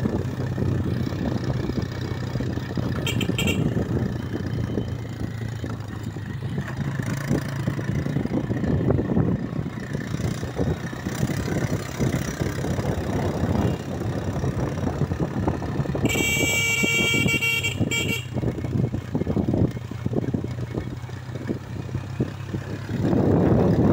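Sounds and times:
motorcycle engine running: 0.0s - 23.9s
horn sounding: 3.0s - 3.9s, 16.0s - 18.4s.

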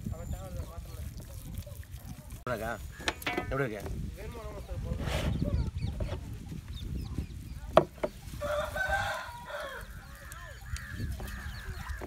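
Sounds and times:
rooster crowing: 8.4s - 10.2s.

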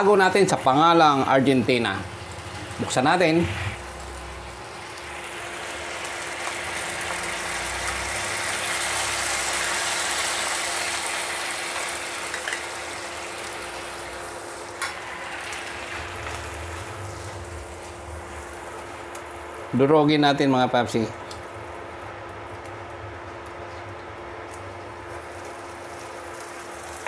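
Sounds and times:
steady hum: 0.0s - 27.0s
sauce simmering and sizzling in a pan: 3.8s - 19.7s, 24.5s - 27.0s.

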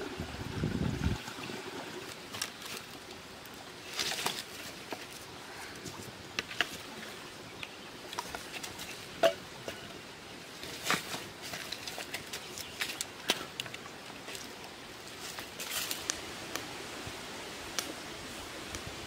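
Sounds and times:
sticks knocking and scraping: 10.6s - 14.6s
campfire crackling and popping: 10.8s - 16.7s, 17.7s - 18.0s.

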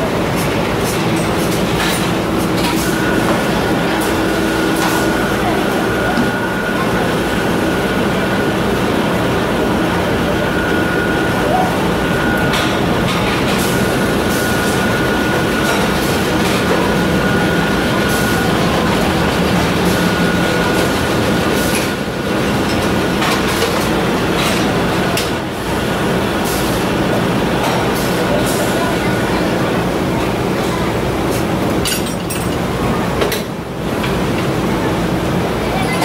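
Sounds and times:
high machine whine: 0.0s - 27.6s.

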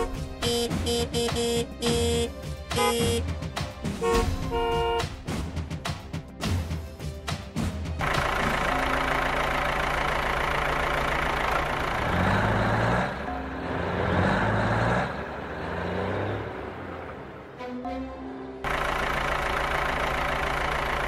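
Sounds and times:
heavy truck engine revving: 8.0s - 17.6s, 18.6s - 21.0s.

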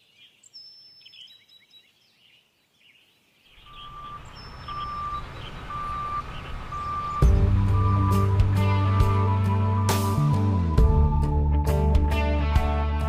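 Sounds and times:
birds chirping faintly: 0.0s - 10.2s
reversing alarm beeping: 3.7s - 10.8s
heavy vehicle engine: 3.8s - 10.8s.

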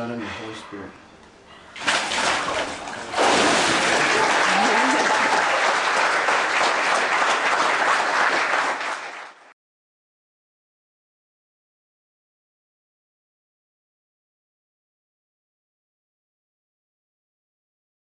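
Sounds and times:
water splashing: 1.8s - 5.3s
congregation applauding: 3.2s - 9.5s.

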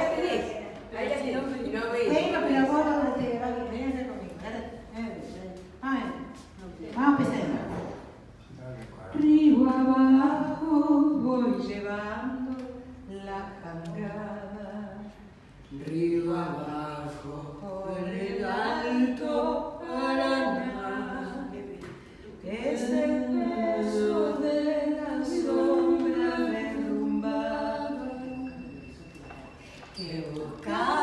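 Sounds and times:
woman singing unaccompanied: 9.2s - 15.3s, 15.9s - 21.8s, 22.4s - 28.8s, 30.0s - 31.0s.

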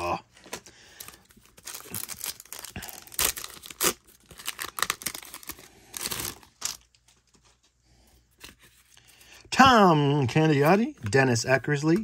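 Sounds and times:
wrapper tearing and crinkling: 1.0s - 7.0s.

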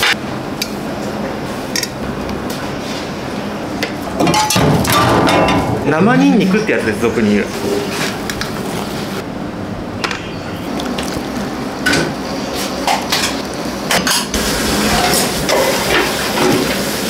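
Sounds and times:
utensils and bowls clinking: 10.6s - 16.8s.

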